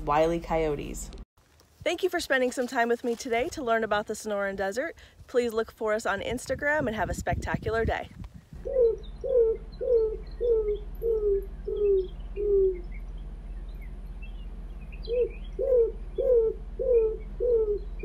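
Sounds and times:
roadrunner low coos: 8.6 - 18.0
small birds chirping: 8.6 - 18.0.

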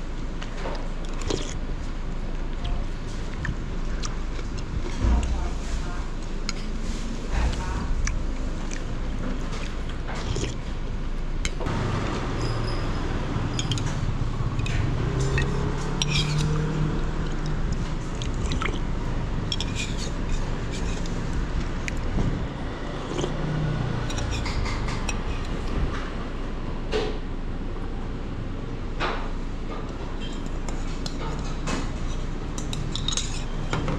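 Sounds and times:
street traffic: 0.0 - 33.9
motor passing: 11.7 - 19.4, 22.7 - 25.6
spoon clinking against bowl: 13.5 - 14.0, 14.6 - 16.6, 19.5 - 21.1.

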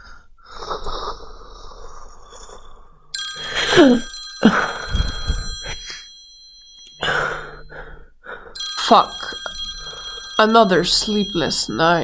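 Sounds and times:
mobile phone ringing: 3.2 - 7.7, 8.6 - 12.0.

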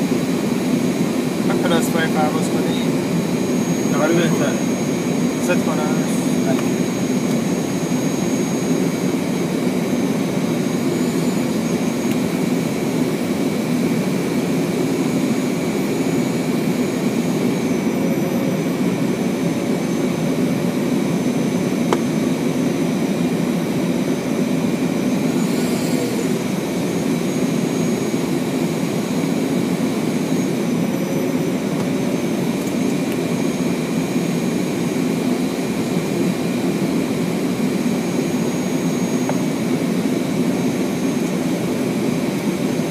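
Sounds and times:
thin high whine: 0.0 - 18.6
jet engine hum: 0.0 - 42.9.

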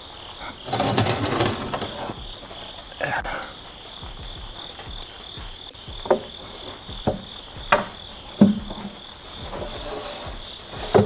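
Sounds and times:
metal shelf knocking and clanking: 0.6 - 2.3, 6.0 - 11.0.

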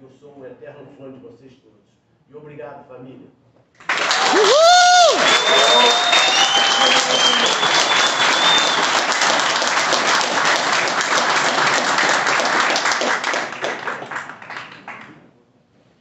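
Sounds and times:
people clapping: 3.8 - 15.3.

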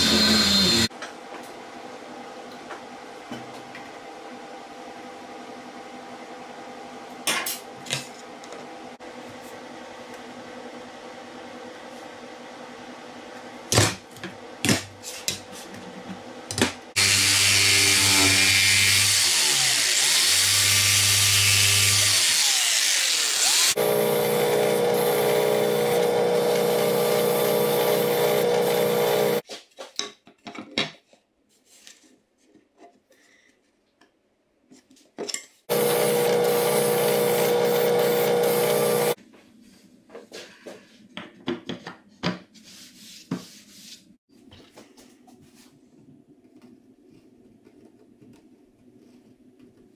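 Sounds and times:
drill press sanding wood: 0.0 - 0.9, 17.0 - 29.4, 35.7 - 39.2
power tool running: 0.0 - 0.9, 17.0 - 29.4, 35.7 - 39.2.

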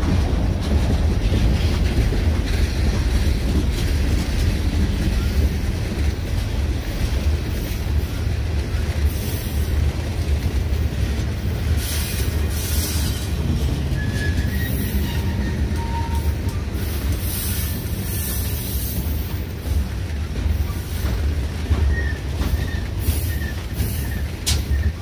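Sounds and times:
freight train rolling past: 0.0 - 25.0
high wheel squeal: 11.8 - 19.1, 21.8 - 25.0.

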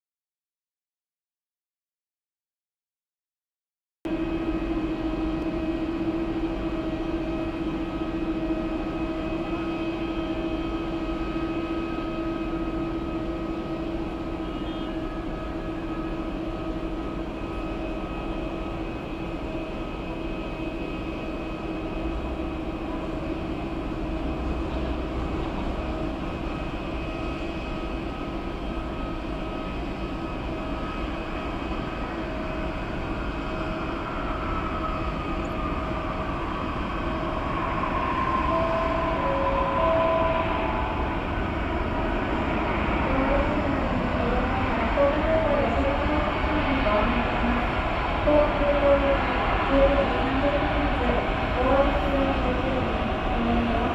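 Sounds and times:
jet engine hum with whine: 4.1 - 53.9
whining tone falling in pitch: 33.9 - 45.0.

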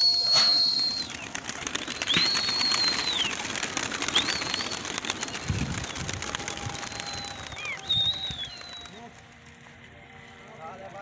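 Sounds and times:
high whistled notes: 0.0 - 1.2, 1.8 - 3.4
pigeon wings flapping: 0.0 - 10.4.

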